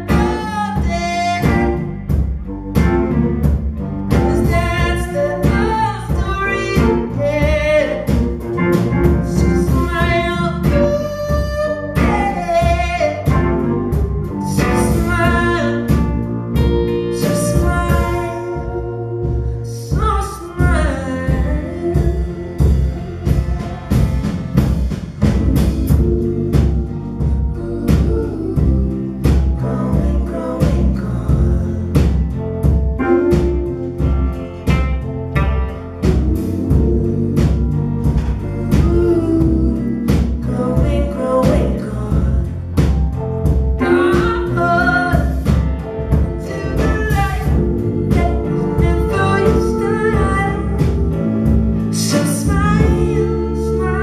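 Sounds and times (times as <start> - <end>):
man singing: 0.0 - 2.0, 4.1 - 16.2, 17.1 - 23.3, 27.5 - 32.2, 38.4 - 42.6, 43.8 - 45.5, 46.1 - 54.0
bass guitar: 0.0 - 54.0
drums keeping a steady beat: 0.0 - 54.0
electric guitar: 0.0 - 54.0.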